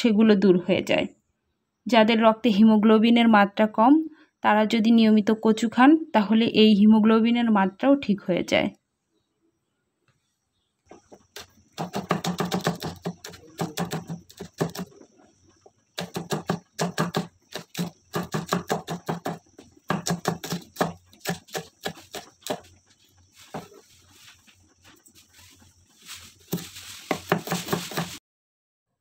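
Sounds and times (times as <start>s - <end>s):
knife chopping on wooden board: 11.2s - 15.0s, 16.0s - 22.8s, 26.5s - 28.2s.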